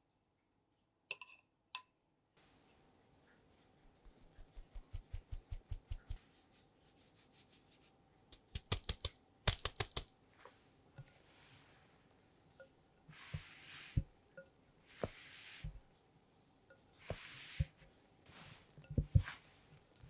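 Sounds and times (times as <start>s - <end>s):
metal sieve tapping: 8.3s - 10.1s.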